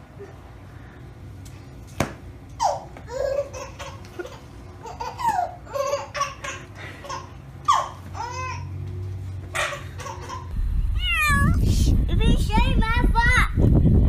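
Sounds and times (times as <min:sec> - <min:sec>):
baby laughing and squealing: 0:02.6 - 0:08.8.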